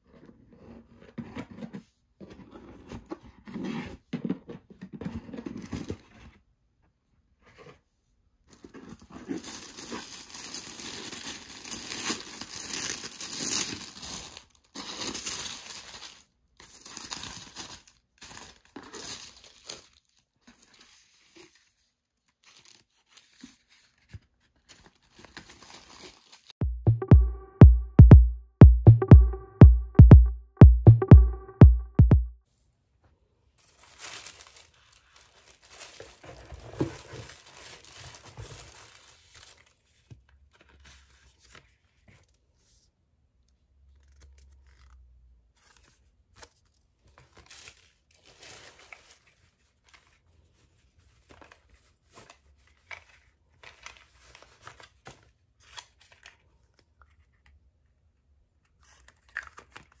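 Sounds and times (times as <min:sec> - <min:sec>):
paper tearing and crinkling: 0:08.8 - 0:21.6, 0:24.6 - 0:26.5, 0:33.6 - 0:39.8.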